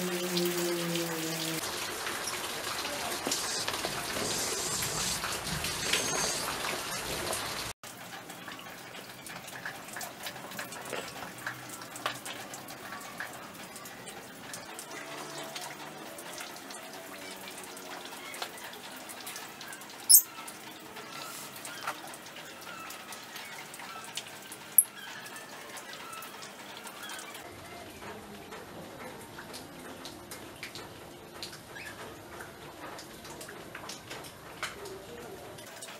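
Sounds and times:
high-pitched chirp: 20.1 - 20.3.

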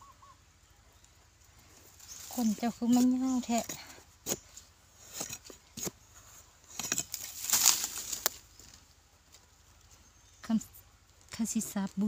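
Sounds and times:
scraping and rustling of earth: 1.5 - 10.1
knocks in dry soil: 1.9 - 9.5.

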